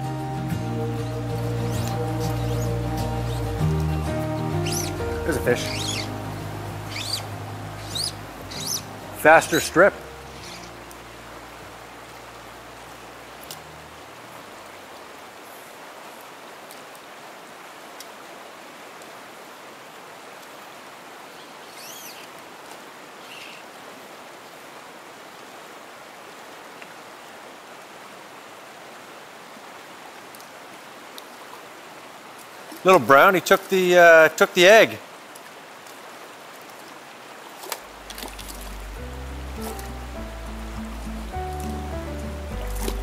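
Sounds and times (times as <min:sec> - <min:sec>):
creek rushing over riffles: 0:00.0 - 0:15.8, 0:32.6 - 0:35.1, 0:37.5 - 0:43.0.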